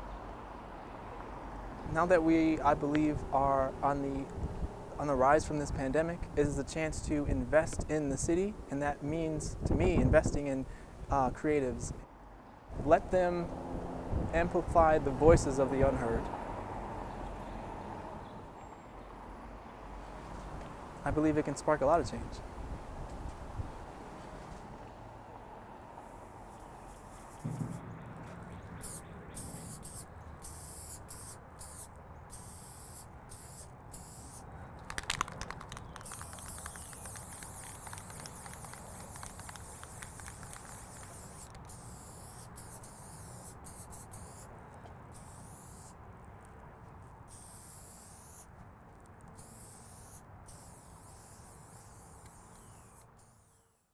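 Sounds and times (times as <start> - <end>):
spray-paint can hissing: 28.8 - 44.5, 45.1 - 46.0, 47.3 - 48.5, 49.4 - 53.8.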